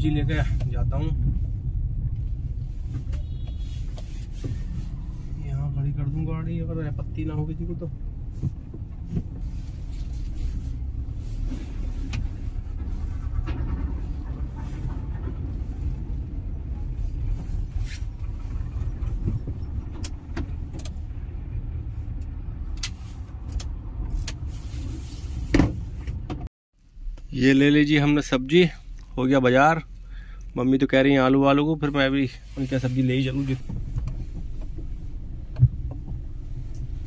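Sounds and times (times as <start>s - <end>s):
car engine and tyre rumble: 0.0s - 37.0s.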